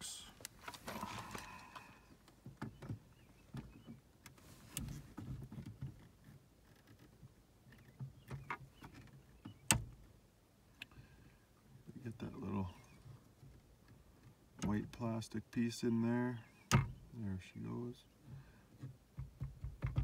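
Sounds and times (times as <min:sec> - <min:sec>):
steering wheel clicks and knocks: 0:02.3 - 0:10.1, 0:18.8 - 0:20.0.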